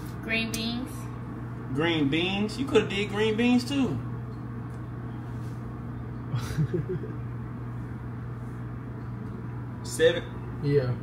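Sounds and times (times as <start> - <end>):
low machine hum: 0.0 - 11.0.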